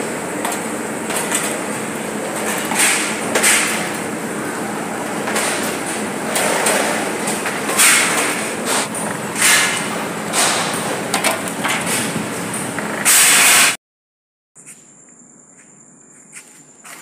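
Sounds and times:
oven machinery rushing and clattering: 0.0 - 13.4
crickets chirring: 14.6 - 17.0.

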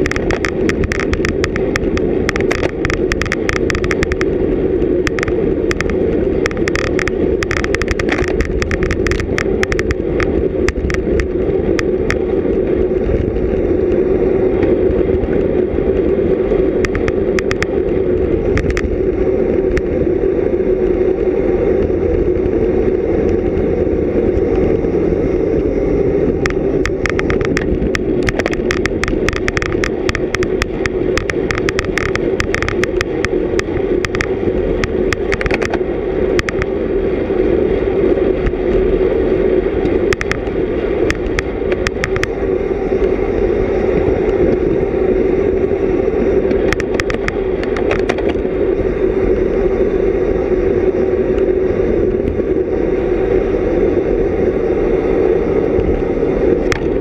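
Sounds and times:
rapid clicking and rattling: 0.0 - 13.6, 16.8 - 19.0, 26.3 - 36.7, 39.8 - 42.4, 46.5 - 48.4
road rumble: 0.0 - 57.0
wind buffeting microphone: 0.0 - 57.0.

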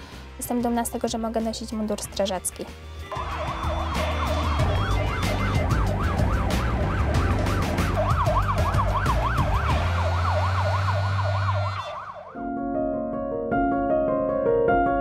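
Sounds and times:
fire engine siren yelping: 3.1 - 12.4.

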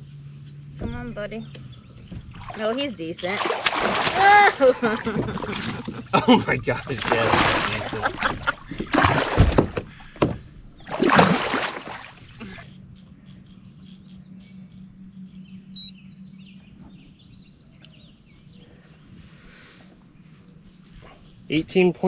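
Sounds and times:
low hum: 0.0 - 22.0
water splashing and sloshing: 2.0 - 12.6.

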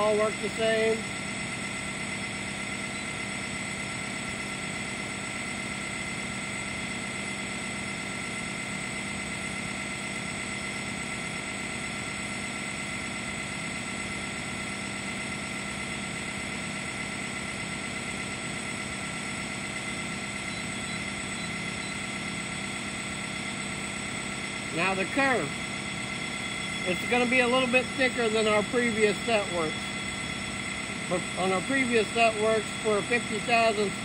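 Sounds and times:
constant high tones: 0.0 - 4.4, 16.5 - 34.0
machinery hum: 0.0 - 34.0.

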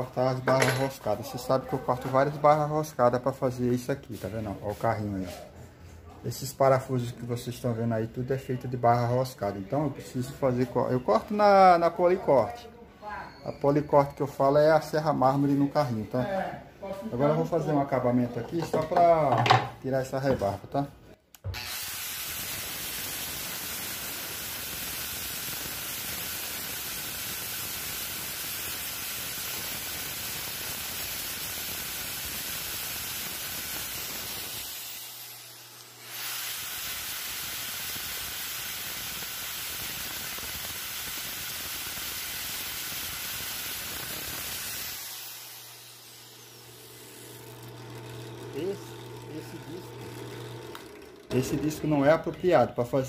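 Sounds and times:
angle grinder grinding steel: 34.0 - 37.6, 41.7 - 52.4.

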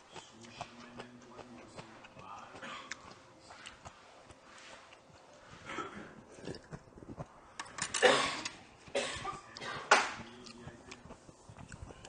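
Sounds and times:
man coughing: 5.6 - 6.2, 8.0 - 10.1.

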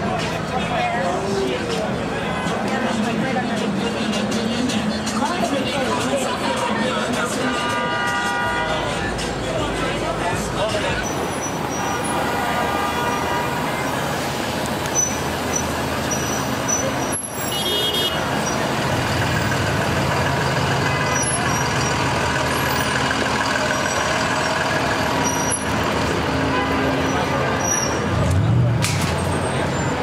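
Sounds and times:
car engines and road noise: 0.0 - 30.0
car horns: 6.4 - 9.2, 11.0 - 28.2.

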